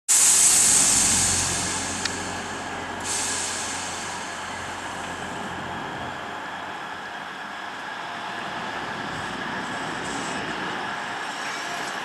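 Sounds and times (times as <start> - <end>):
train air hiss: 0.1 - 7.0, 8.7 - 12.0
sharp click: 1.9 - 2.3.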